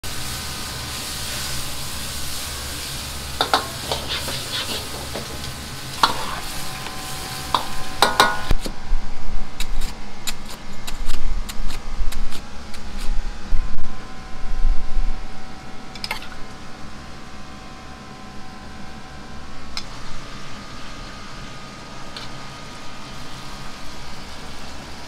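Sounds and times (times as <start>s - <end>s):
wok sizzling: 0.0s - 10.6s, 19.9s - 25.0s
metal ladle scraping wok: 3.4s - 8.5s.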